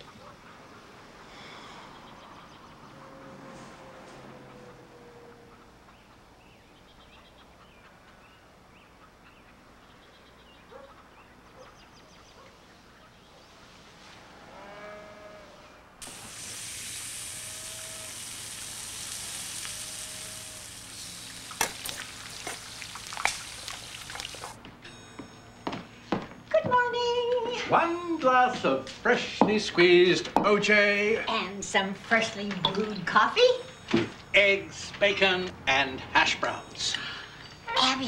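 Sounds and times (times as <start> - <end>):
faint bird calls: 14.5 - 21.6
eggs sizzling in skillet: 16.0 - 24.6.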